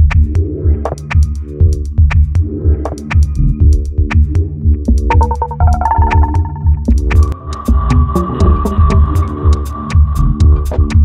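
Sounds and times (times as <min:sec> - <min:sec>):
held high synth tone: 0:05.1 - 0:06.9
synthesizer tones: 0:05.1 - 0:07.0
high percussive ticks: 0:05.1 - 0:07.4
deep bass pulse: 0:05.2 - 0:09.2.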